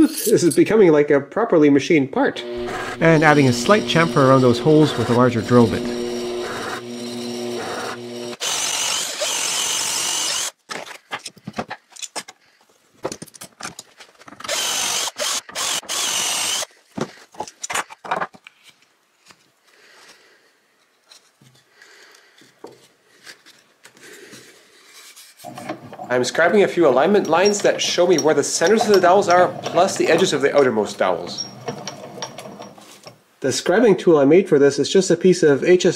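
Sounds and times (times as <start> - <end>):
machine hum: 2.3 - 10.5
cordless drill boring into wood: 2.3 - 10.6, 14.4 - 16.7, 26.1 - 32.7.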